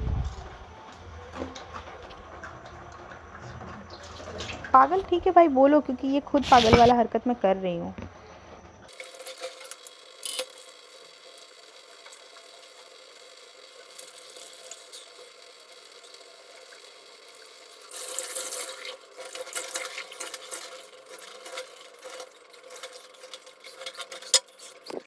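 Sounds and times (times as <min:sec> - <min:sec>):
short hiss: 0:06.4 - 0:06.9
rubbing and scraping: 0:06.4 - 0:07.0.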